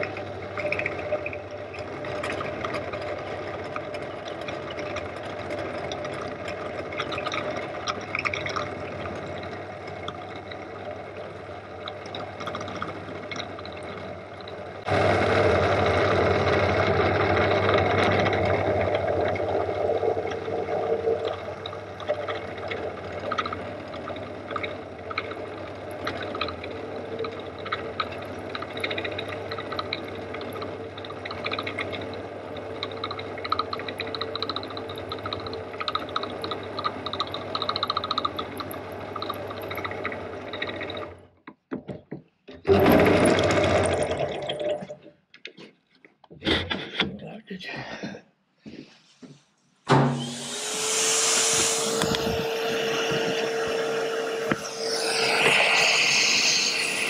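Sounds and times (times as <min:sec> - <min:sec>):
drill motor hum: 0:14.9 - 0:22.8, 0:50.0 - 0:57.0
end mill cutting metal: 0:49.9 - 0:57.0.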